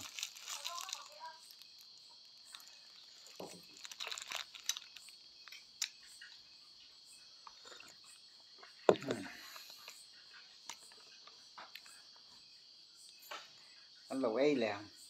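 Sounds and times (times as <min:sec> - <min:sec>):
plastic wrapper crinkling: 0:00.0 - 0:01.8, 0:02.5 - 0:05.1
man chewing with crisp crunching: 0:00.0 - 0:06.5, 0:07.4 - 0:12.3
crickets chirring: 0:00.0 - 0:15.0.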